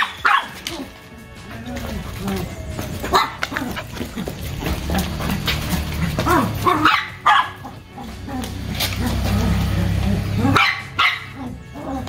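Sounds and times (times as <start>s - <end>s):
dogs barking and yipping: 0.0s - 12.0s.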